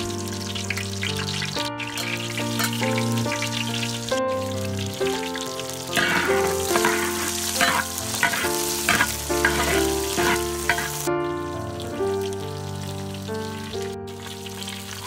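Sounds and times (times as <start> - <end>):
background music: 0.0 - 15.0
food sizzling in hot oil: 0.0 - 15.0
metal spatula scraping pan: 2.0 - 2.8, 5.9 - 11.1.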